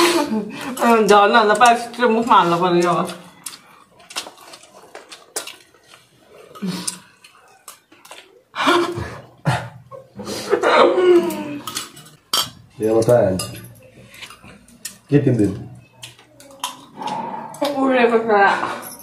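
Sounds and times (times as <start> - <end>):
chopsticks clicking against bowls: 0.6 - 8.3, 11.2 - 15.1, 15.9 - 17.8
voices: 15.8 - 19.0.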